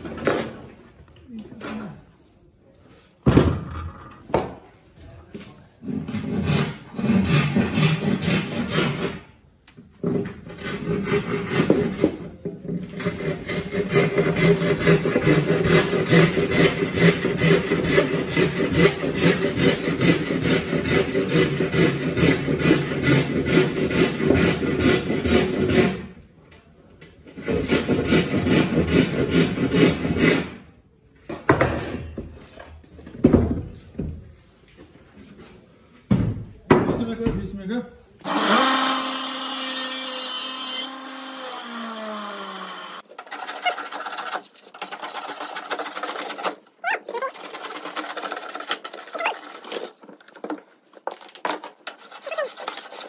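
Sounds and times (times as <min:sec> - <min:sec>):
hand tool scraping wood: 0:05.7 - 0:26.1, 0:27.3 - 0:30.6, 0:43.0 - 0:53.0.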